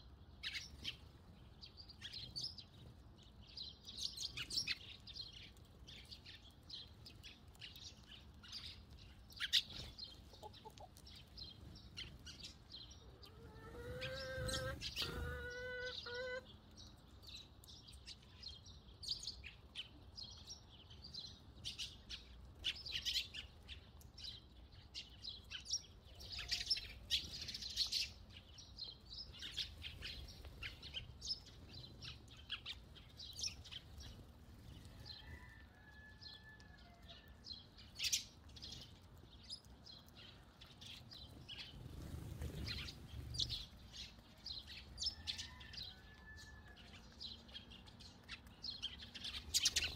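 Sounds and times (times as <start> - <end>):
sparrows chirping: 0.0 - 49.9
chicken calling: 13.0 - 16.5.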